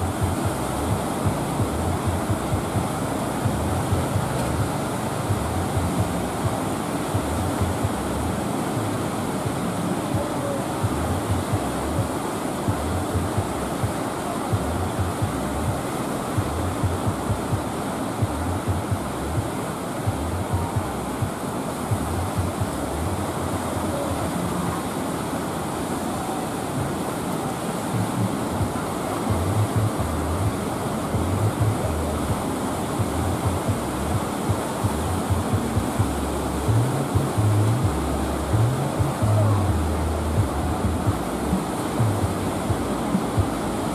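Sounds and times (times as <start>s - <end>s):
low rumbles: 0.0s - 8.4s, 29.3s - 43.9s
wind buffeting microphone: 0.0s - 24.6s, 27.9s - 43.9s
sea waves and surf: 0.0s - 43.9s.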